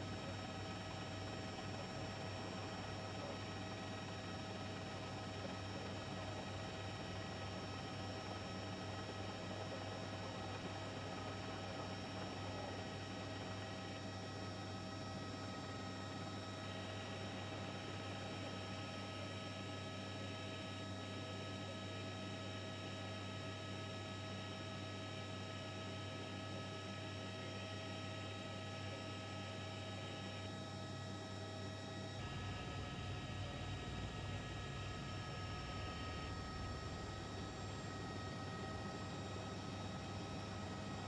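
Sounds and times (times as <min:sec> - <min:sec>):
faint whining tones: 0:29.0 - 0:41.0.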